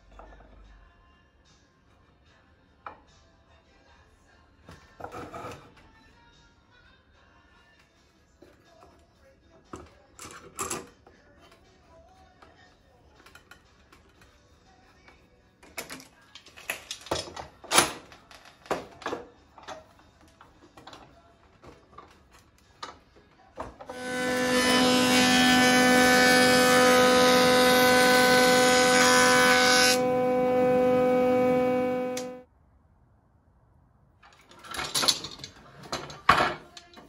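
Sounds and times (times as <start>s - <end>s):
clamps clicking and knocking: 15.6s - 19.9s, 34.3s - 37.0s
jointer-planer humming: 23.9s - 32.4s.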